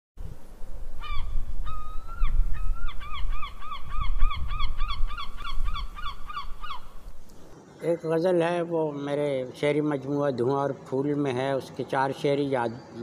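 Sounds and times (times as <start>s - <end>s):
bird honking calls: 2.9s - 7.0s.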